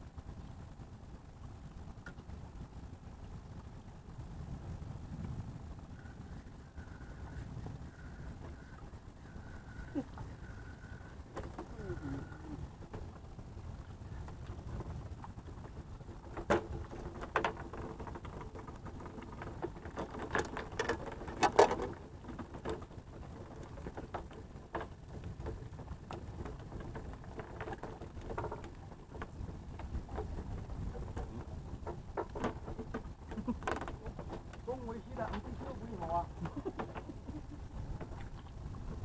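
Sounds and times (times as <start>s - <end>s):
wind rumbling on microphone: 0.0s - 39.0s
gear knocking on wooden deck: 14.9s - 37.1s.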